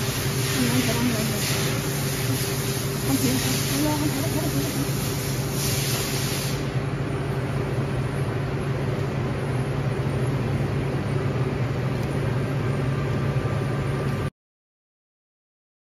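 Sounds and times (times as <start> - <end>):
industrial machinery droning: 0.0 - 14.3.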